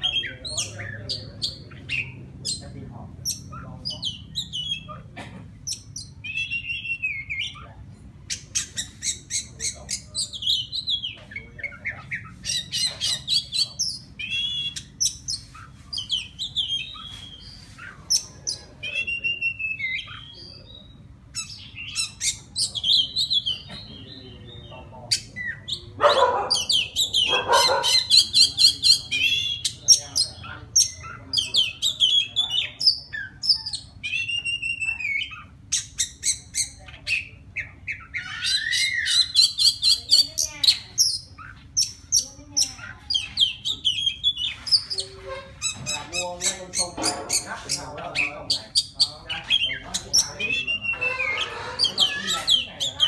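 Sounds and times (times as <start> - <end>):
harsh bird call: 5.7 - 53.0
bird singing whistled phrases: 6.0 - 7.6, 18.8 - 24.7, 32.1 - 35.4.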